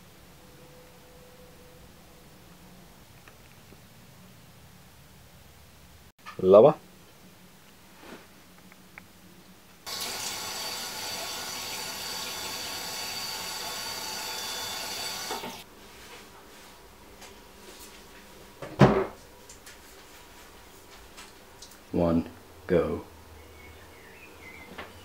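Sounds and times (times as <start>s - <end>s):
tap running into washbasin: 9.9s - 15.6s
cabinet door thump: 18.6s - 19.2s.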